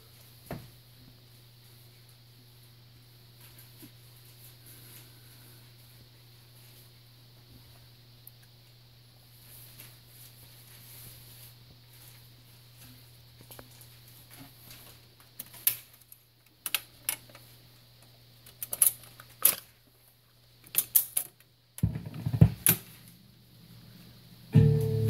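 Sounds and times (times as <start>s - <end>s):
low steady hum: 21.5s - 25.0s.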